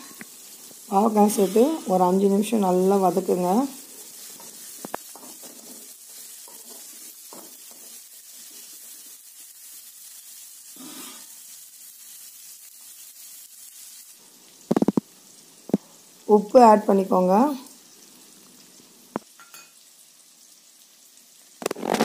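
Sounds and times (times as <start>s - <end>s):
vegetables sizzling in a pan: 0.0s - 22.0s
steel spoon scraping: 1.1s - 2.1s, 4.0s - 8.6s.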